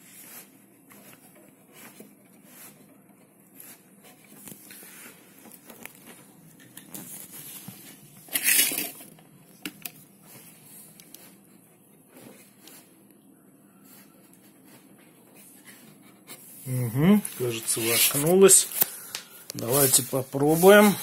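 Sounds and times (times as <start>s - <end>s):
plug handling scraping and rustling: 5.5s - 10.0s
harsh scrape: 8.3s - 9.0s, 17.3s - 18.8s.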